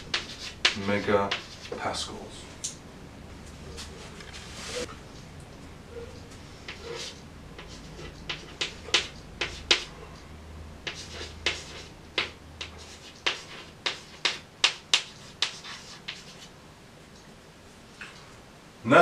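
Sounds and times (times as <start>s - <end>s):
chalk tapping and scratching: 0.0s - 1.9s, 6.6s - 10.2s, 10.8s - 16.5s.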